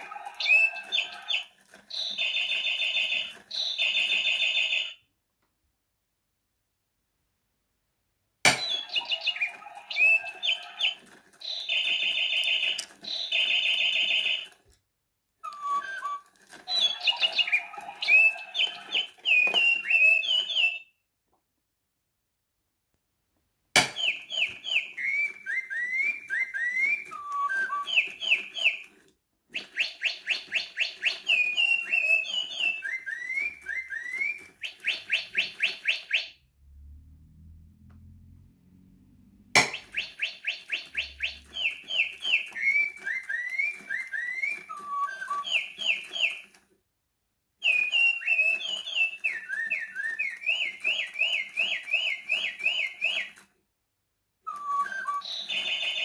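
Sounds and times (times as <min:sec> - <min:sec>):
toy bird chirps and trills: 0:00.0 - 0:05.1, 0:08.5 - 0:14.7, 0:15.4 - 0:21.0, 0:23.8 - 0:36.4, 0:39.6 - 0:46.6, 0:47.6 - 0:53.5, 0:54.5 - 0:56.0
toy click: 0:08.5 - 0:14.8.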